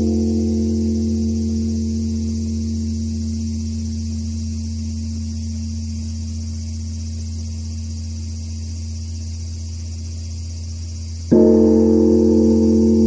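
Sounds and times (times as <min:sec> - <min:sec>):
large temple bell humming: 0:00.0 - 0:07.6, 0:11.3 - 0:13.0.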